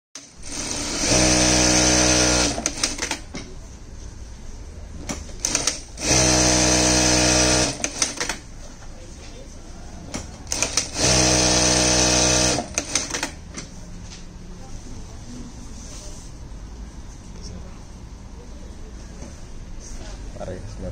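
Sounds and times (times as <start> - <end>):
sewing machine stitching: 0.2 - 3.4, 5.1 - 8.4, 10.1 - 13.4
sharp mechanical clicks: 5.1 - 6.3, 7.6 - 8.4, 10.1 - 11.4, 12.4 - 13.6.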